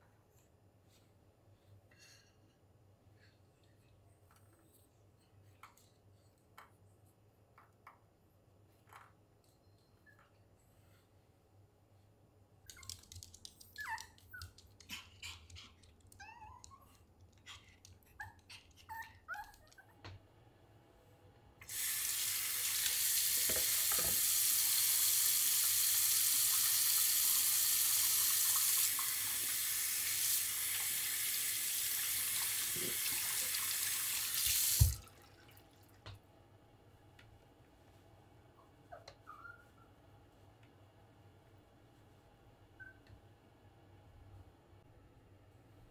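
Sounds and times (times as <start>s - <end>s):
light clicks and squeaks: 7.5s - 10.8s, 12.6s - 20.2s
tap water running: 21.6s - 36.0s.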